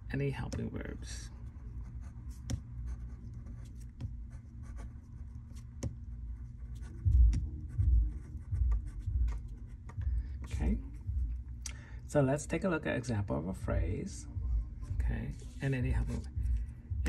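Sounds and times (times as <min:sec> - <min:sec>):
pen scratching on paper: 0:01.4 - 0:10.5.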